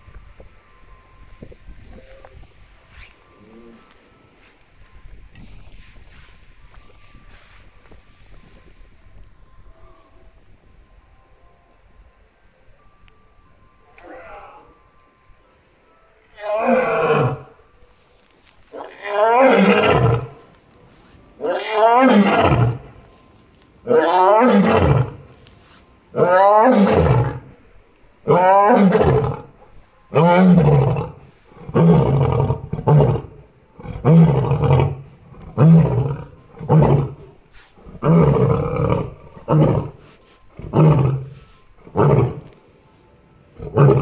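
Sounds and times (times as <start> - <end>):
lion roaring: 16.4 - 17.5, 18.7 - 20.4, 21.4 - 22.9, 23.9 - 25.2, 26.2 - 27.5, 28.3 - 29.5, 30.1 - 40.0, 40.6 - 42.5, 43.6 - 44.0.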